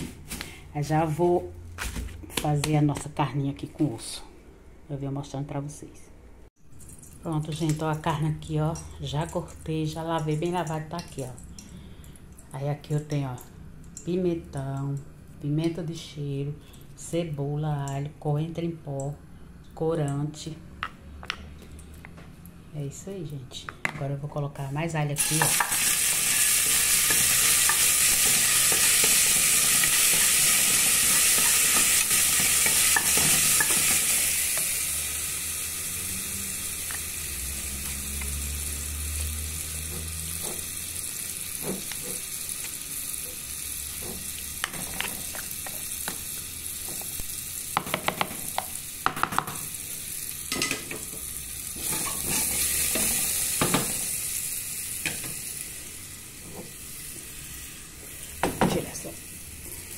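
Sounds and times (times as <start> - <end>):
garlic sizzling in oil: 24.6 - 59.9.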